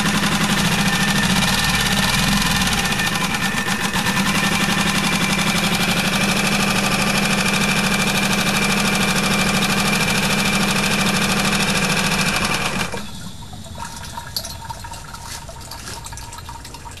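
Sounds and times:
outboard motor running: 0.0 - 14.1
water sloshing: 13.0 - 17.0.

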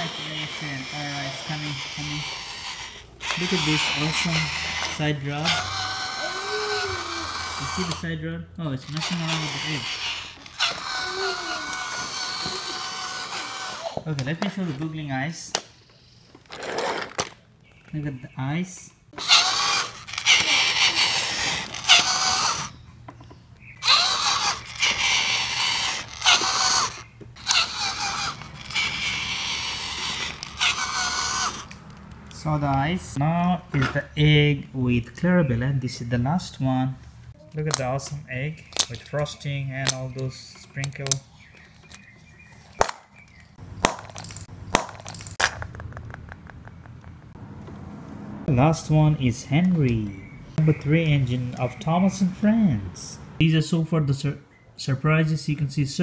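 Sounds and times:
toy train motor whirring: 0.0 - 8.1, 8.8 - 14.0, 16.4 - 17.4, 19.2 - 22.8, 23.8 - 31.9
plastic egg snapping open: 42.7 - 47.3.

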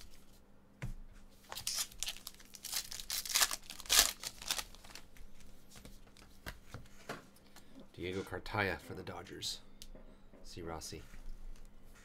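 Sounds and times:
foil wrapper tearing and crinkling: 1.6 - 5.0.

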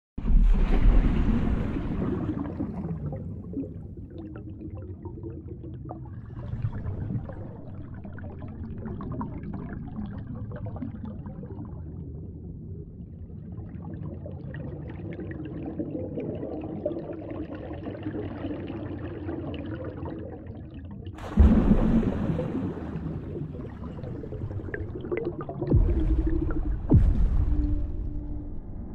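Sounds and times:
underwater water rush: 0.2 - 11.7, 21.2 - 28.6
underwater gurgling and bubbling: 0.2 - 28.9.

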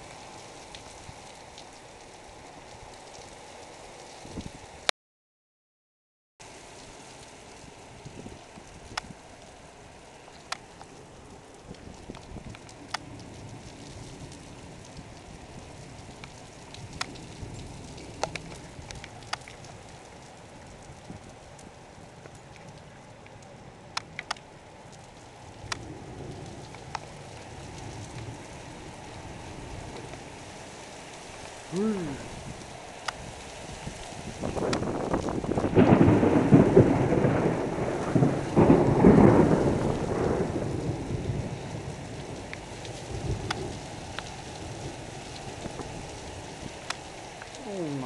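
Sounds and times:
heavy rain falling: 0.0 - 4.9, 6.4 - 48.0
thunder rumbling: 10.4 - 48.0.

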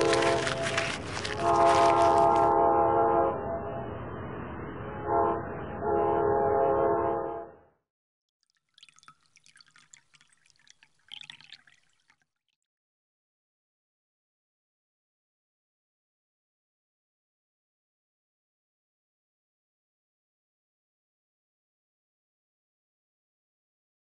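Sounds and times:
faint crackling: 0.0 - 2.6
moving train noise: 0.0 - 7.2
train horn blasts: 1.3 - 3.9, 4.9 - 7.7.

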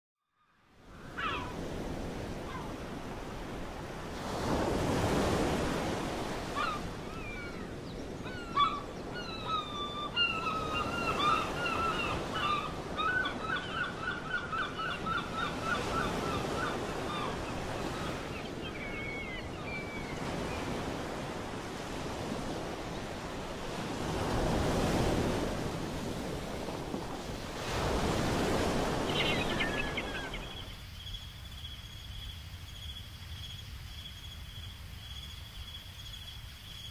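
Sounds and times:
birds chirping and trilling: 1.0 - 2.9, 5.0 - 23.9, 27.6 - 33.6
crickets chirring: 1.0 - 36.9
ocean surf washing in: 1.5 - 7.1, 20.1 - 30.6.

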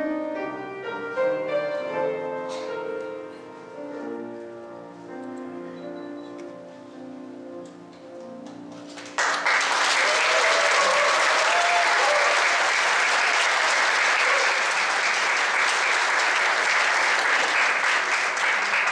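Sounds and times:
audience applause: 8.9 - 18.9.

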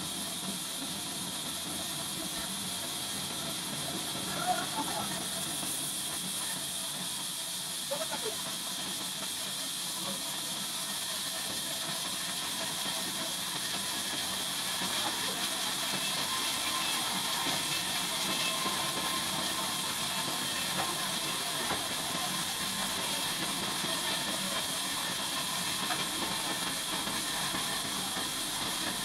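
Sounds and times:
band sawmill hissing: 0.0 - 29.0.

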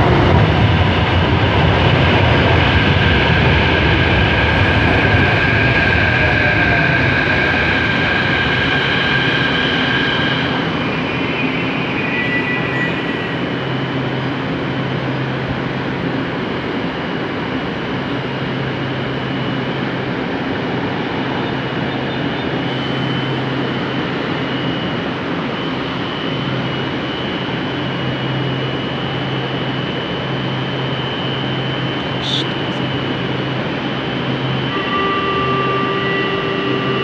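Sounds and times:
metro train equipment humming: 0.0 - 37.0
thin high whine: 3.0 - 15.8, 18.2 - 37.0.

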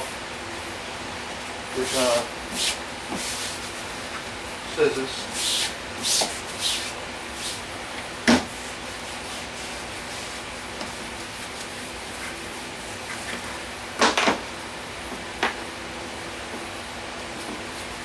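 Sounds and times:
hands rubbing a pad on board: 1.9 - 3.8, 5.3 - 7.6, 8.3 - 13.6.

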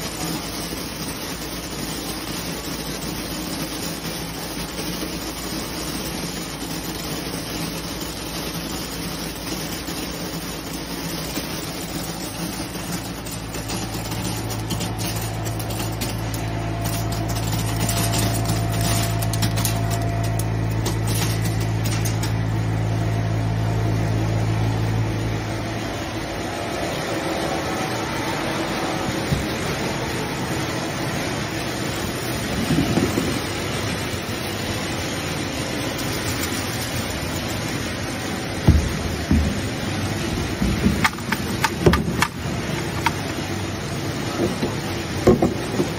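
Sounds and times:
sorting machine running: 0.0 - 45.9
strong low hum: 12.2 - 35.9.

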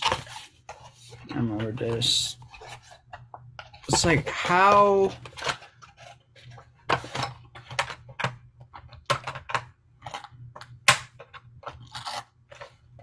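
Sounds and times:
packaging being pried open: 10.9 - 12.7.

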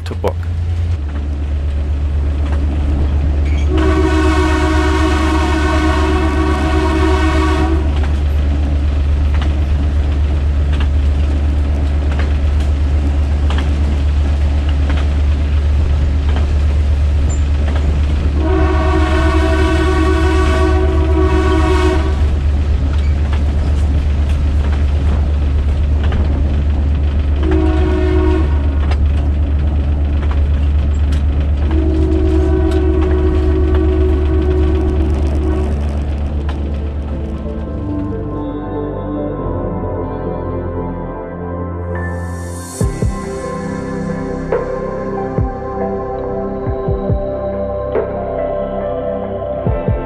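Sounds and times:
train rumble: 0.0 - 39.1, 41.9 - 50.0
locomotive horn blasts: 3.6 - 8.1, 18.4 - 22.4, 27.4 - 28.8, 31.7 - 36.1.

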